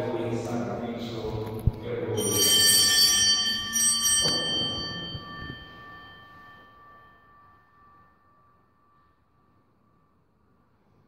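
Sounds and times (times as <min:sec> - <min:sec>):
small bells ringing: 0:02.1 - 0:10.2.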